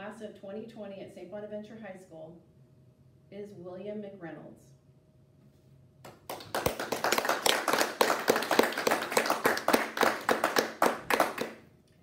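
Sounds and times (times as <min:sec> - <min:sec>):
people clapping: 0:06.1 - 0:11.6.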